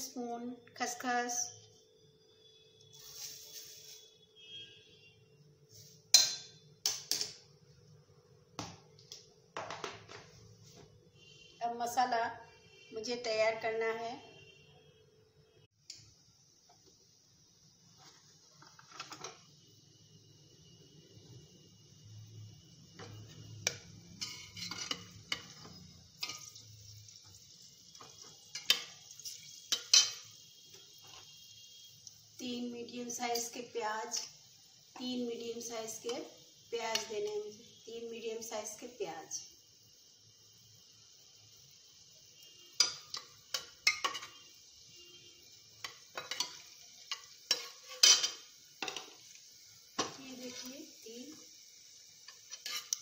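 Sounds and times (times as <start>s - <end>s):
hot oil sizzling in a pan: 0.0s - 1.8s, 2.4s - 4.9s, 5.6s - 7.7s, 15.7s - 53.0s
spoon clinking against metal pots: 6.1s - 7.4s, 23.0s - 27.4s, 28.0s - 30.4s, 42.8s - 44.5s, 45.8s - 49.2s.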